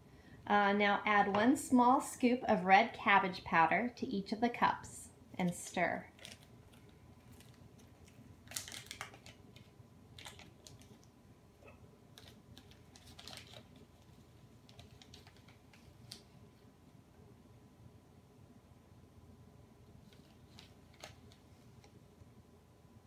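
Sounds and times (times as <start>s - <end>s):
plastic bag crinkling: 6.0s - 11.2s, 12.1s - 16.4s, 20.0s - 21.9s.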